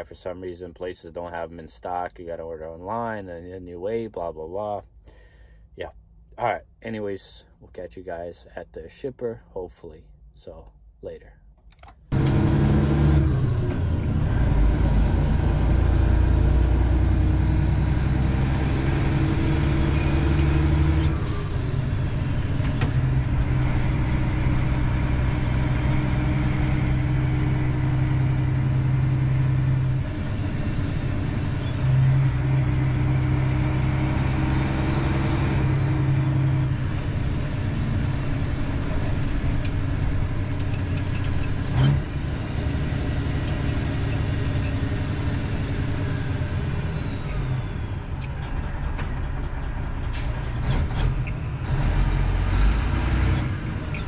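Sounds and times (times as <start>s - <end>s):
truck diesel engine under load: 12.1s - 54.0s.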